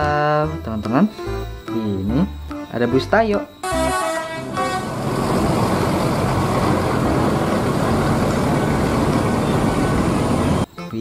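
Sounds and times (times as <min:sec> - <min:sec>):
bus horn: 0:03.5 - 0:10.6
bus engines and road traffic: 0:03.6 - 0:10.7.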